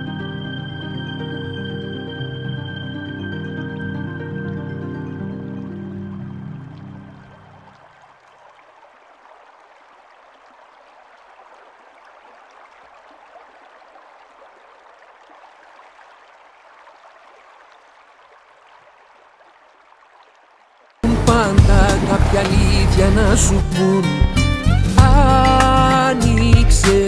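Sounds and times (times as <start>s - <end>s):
faint rushing water: 3.3s - 24.3s.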